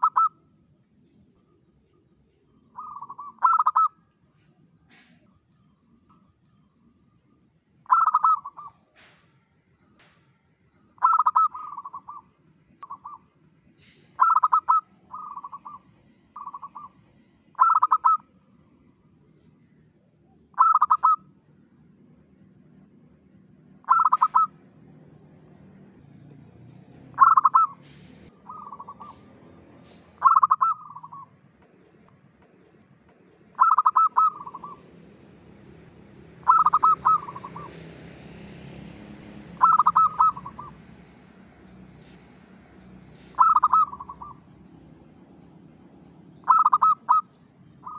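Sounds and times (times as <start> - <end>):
dove cooing: 0.0 - 0.4, 2.7 - 4.0, 7.8 - 9.2, 11.0 - 13.3, 13.9 - 17.0, 17.6 - 18.2, 20.5 - 21.3, 23.8 - 24.6, 27.1 - 31.4, 33.4 - 34.9, 36.4 - 37.8, 39.5 - 40.9, 43.2 - 44.5, 46.4 - 47.9.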